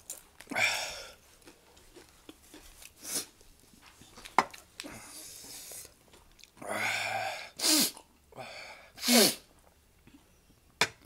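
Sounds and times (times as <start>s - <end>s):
person sneezing: 7.6s - 8.0s, 9.0s - 9.5s.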